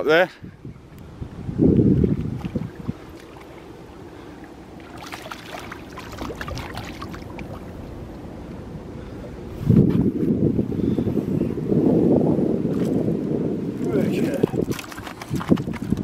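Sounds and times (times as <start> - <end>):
wind buffeting microphone: 0.0 - 16.0
low wash of water: 0.8 - 16.0
fish splashing at water surface: 4.8 - 7.7, 14.5 - 16.0.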